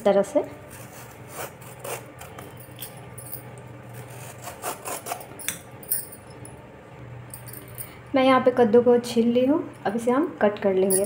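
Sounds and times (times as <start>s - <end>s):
vegetable peeler scraping gourd skin: 0.7s - 2.5s, 3.9s - 5.4s.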